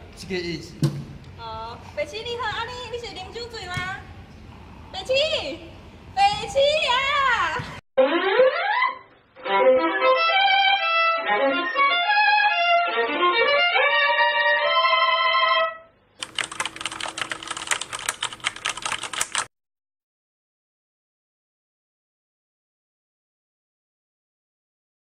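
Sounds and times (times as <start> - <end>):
keyboard typing clicks: 16.2 - 19.5.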